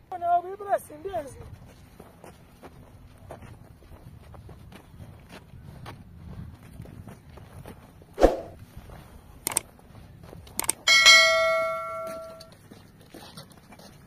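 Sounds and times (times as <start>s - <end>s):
footsteps on dirt: 1.0s - 14.0s
sharp clicks: 9.4s - 9.7s, 10.5s - 10.8s
bell ding: 10.9s - 12.5s.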